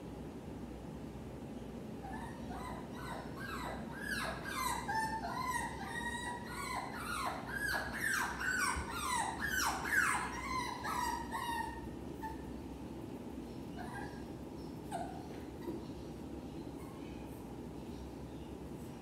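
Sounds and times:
dog whining: 2.0s - 12.6s, 13.7s - 15.9s.

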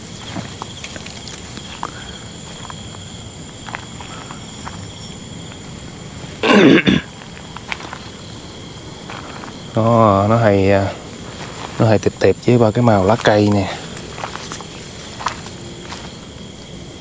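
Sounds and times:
footsteps on trail: 0.0s - 16.8s
high-pitched insect drone: 0.0s - 17.0s
person coughing: 6.4s - 7.1s.

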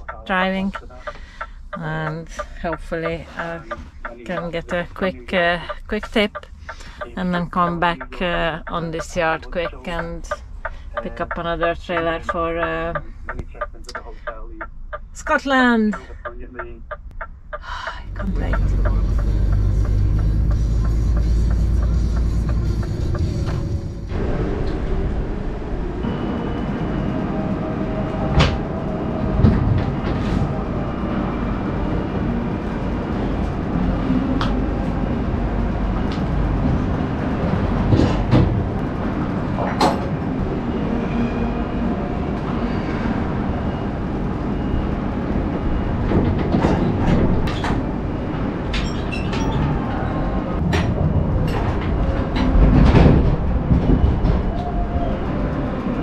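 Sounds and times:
idling diesel lorries rumble: 17.6s - 25.0s.

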